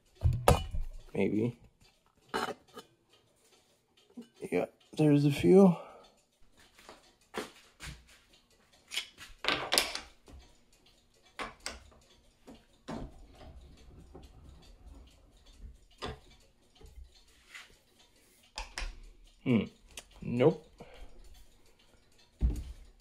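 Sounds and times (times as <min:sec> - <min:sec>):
metal parts clicking and knocking: 0:08.8 - 0:10.6, 0:11.2 - 0:17.3, 0:18.5 - 0:20.2.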